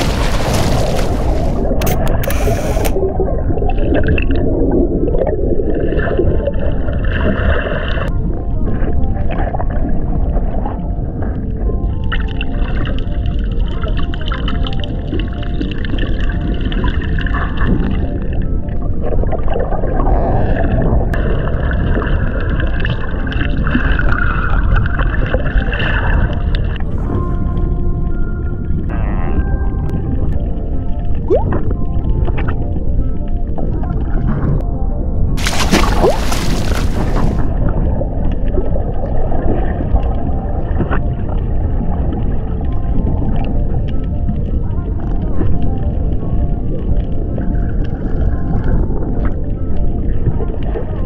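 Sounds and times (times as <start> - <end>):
water splash: 0.0 - 4.4, 35.4 - 37.5
muffled underwater rush with bubbles: 0.0 - 51.0
water gurgling and swirling: 0.0 - 51.0.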